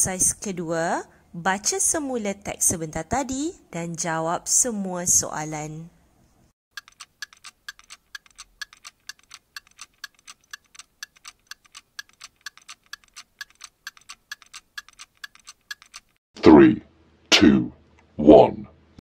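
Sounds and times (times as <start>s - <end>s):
clock ticking: 6.7s - 16.2s.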